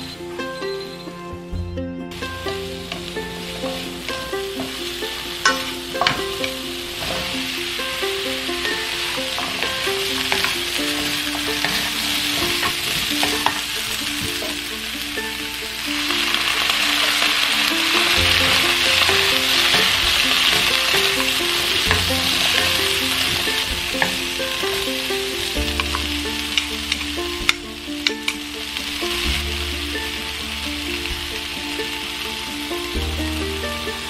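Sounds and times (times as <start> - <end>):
vegetables sizzling in a wok: 2.1 - 34.0
utensils clicking against pan: 2.2 - 14.8, 16.1 - 28.4.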